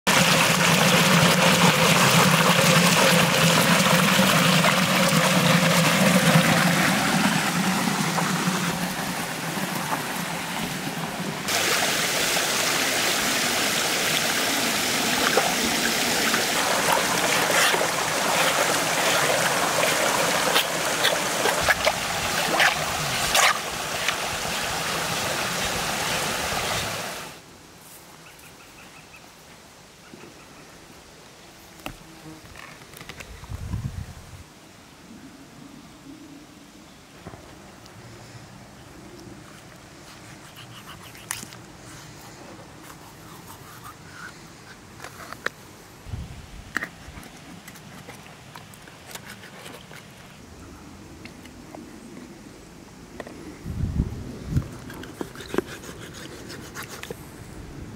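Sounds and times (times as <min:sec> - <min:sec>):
stream water over rocks: 0:00.0 - 0:27.5
fish splashing in water: 0:14.8 - 0:24.7.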